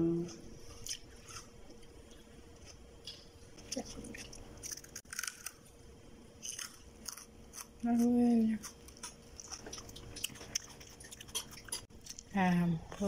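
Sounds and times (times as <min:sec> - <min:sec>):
person chewing crunchy food: 0:00.6 - 0:05.7, 0:06.4 - 0:07.8, 0:08.6 - 0:12.3.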